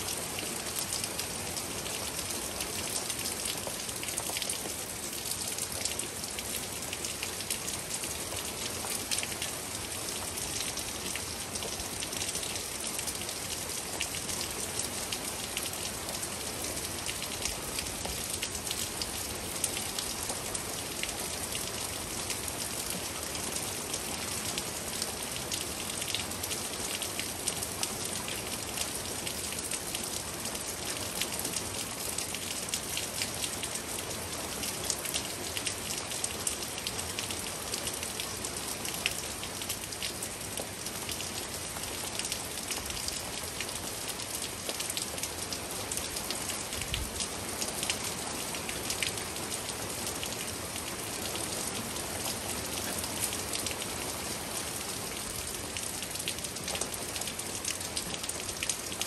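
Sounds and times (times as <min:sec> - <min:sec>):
steady rain: 0:00.0 - 0:59.0
raindrops ticking close by: 0:00.1 - 0:59.0.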